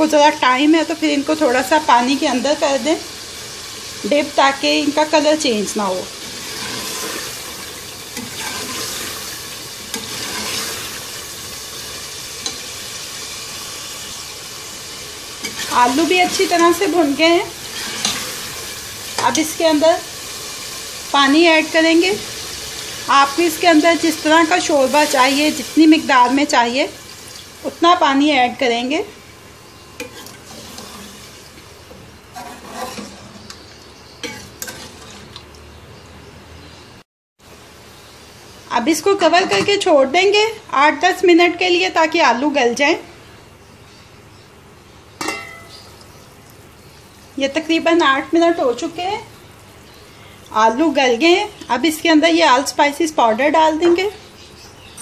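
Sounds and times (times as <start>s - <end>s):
potatoes and meat sizzling: 0.0s - 36.7s, 37.4s - 55.0s
ladle scraping pot: 6.2s - 11.0s, 15.4s - 16.7s, 17.6s - 18.5s, 30.0s - 31.4s, 32.0s - 33.6s, 34.2s - 35.4s
steady hiss: 37.4s - 39.4s, 43.1s - 52.4s
ladle clinking against pot: 45.2s - 45.8s.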